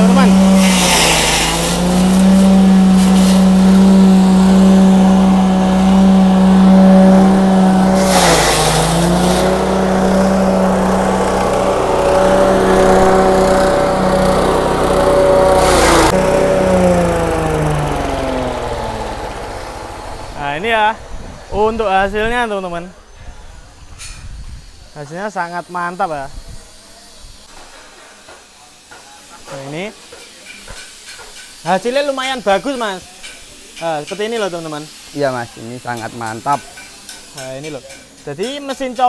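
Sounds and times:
stalks crunching in blades: 0.0s - 18.9s
petrol engine running: 0.0s - 21.5s.

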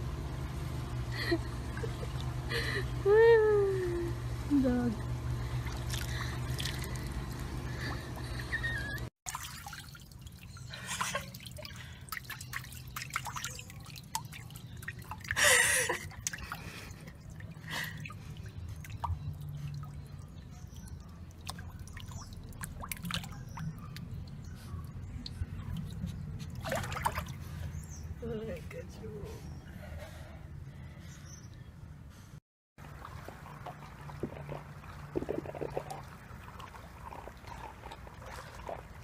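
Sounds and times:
water splashing in paddling pool: 9.3s - 24.2s, 25.3s - 27.6s, 32.8s - 39.0s.

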